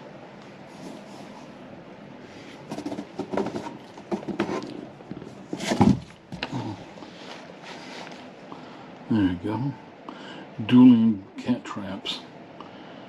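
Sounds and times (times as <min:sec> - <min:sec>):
cardboard boxes knocking and rustling: 0:02.6 - 0:06.6.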